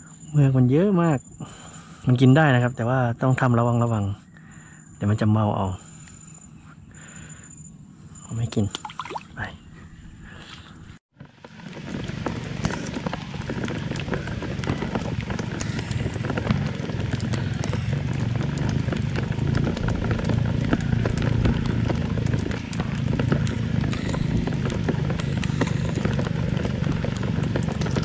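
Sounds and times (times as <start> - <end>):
raindrops pattering: 11.4 - 28.0
steady low rumble: 12.0 - 28.0.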